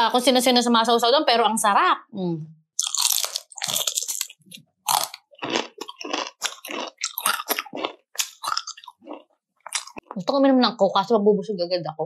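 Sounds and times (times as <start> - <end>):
crunching fried chicken skin: 2.8 - 10.1.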